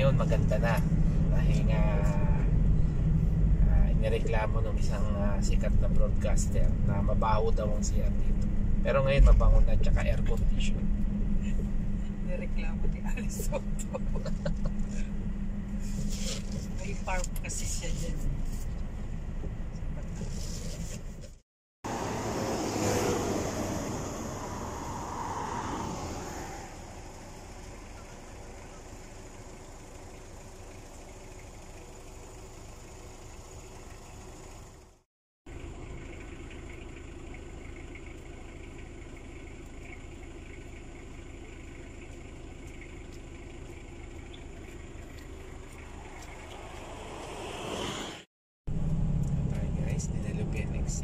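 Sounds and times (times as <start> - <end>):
car engine idling: 0.0 - 22.2, 23.6 - 47.9
tyres and wind rushing: 0.0 - 28.6, 44.3 - 51.0.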